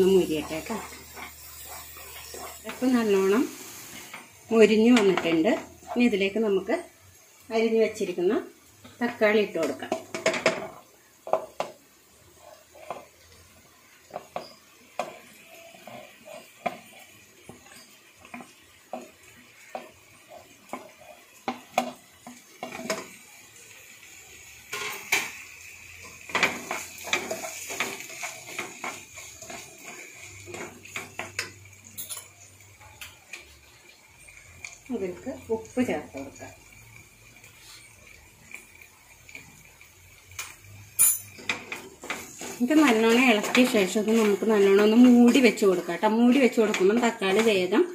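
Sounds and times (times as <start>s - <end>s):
wooden spatula scraping plate and pan: 0.0s - 4.3s, 9.6s - 13.3s, 14.0s - 23.1s, 41.2s - 47.6s.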